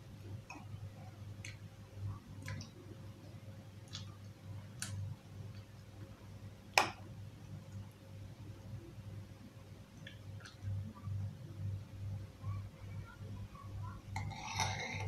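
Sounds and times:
low steady hum: 0:00.0 - 0:15.0
metal spoon clinking on dish: 0:14.2 - 0:15.0.

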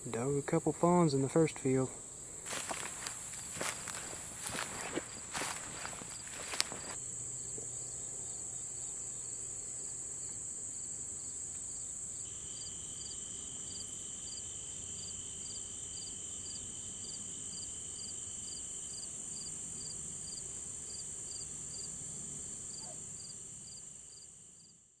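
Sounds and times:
cricket chirping: 0:00.0 - 0:25.0
insect trill: 0:00.0 - 0:25.0.

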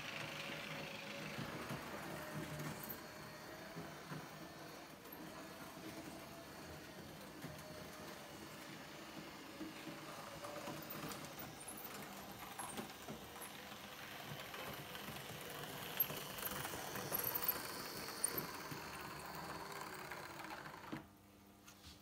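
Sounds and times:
model train motor humming: 0:00.0 - 0:21.1
wheels clicking over rail joints: 0:08.4 - 0:21.1.

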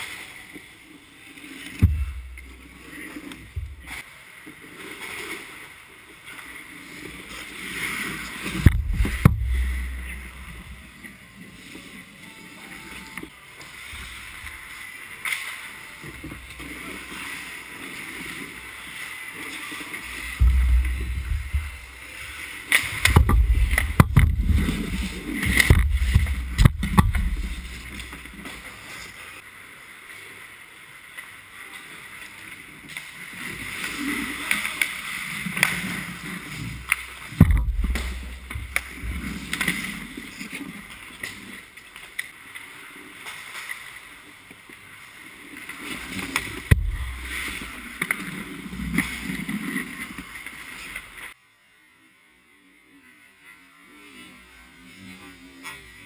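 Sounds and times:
skate blades scraping ice: 0:06.3 - 0:12.2, 0:12.9 - 0:29.4, 0:32.9 - 0:44.0, 0:45.4 - 0:51.4
sticks and puck knocking: 0:20.4 - 0:21.9, 0:23.0 - 0:28.3.

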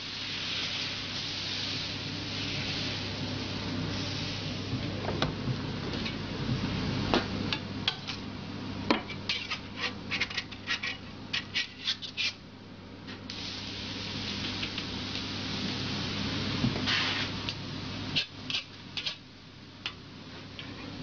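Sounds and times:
steady low hum: 0:00.0 - 0:11.8, 0:12.4 - 0:21.0
metal spatula scraping on griddle: 0:09.2 - 0:12.4, 0:18.1 - 0:19.2.

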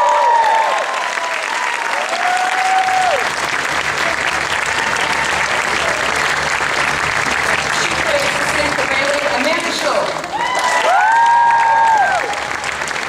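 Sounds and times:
long whoop: 0:00.0 - 0:03.3, 0:10.3 - 0:12.5
audience clapping and cheering: 0:00.0 - 0:13.0.

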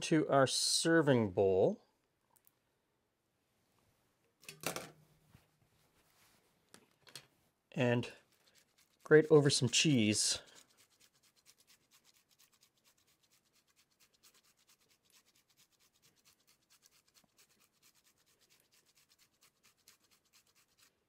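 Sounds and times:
cheese rasping on a grater: 0:08.2 - 0:21.0.

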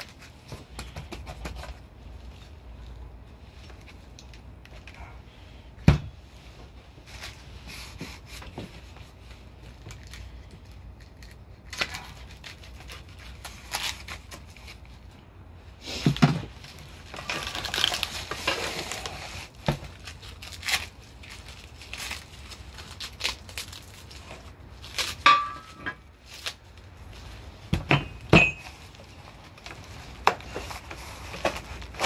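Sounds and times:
cardboard packaging rustling: 0:06.4 - 0:15.2, 0:15.8 - 0:32.0
plastic wrap crinkling: 0:16.4 - 0:25.3
knocks of steel parts: 0:25.2 - 0:26.0, 0:27.7 - 0:28.7.

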